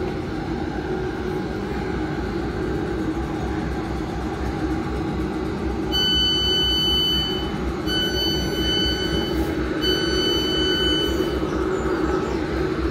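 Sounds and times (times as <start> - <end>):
electric train rumble and hum: 0.0 - 12.9
high electronic warning beeps: 5.9 - 11.7.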